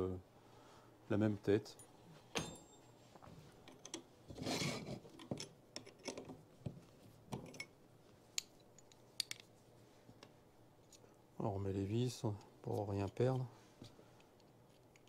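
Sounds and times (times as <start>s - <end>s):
scraping rasp: 4.3s - 5.1s
small metal clicks and taps: 8.4s - 9.5s.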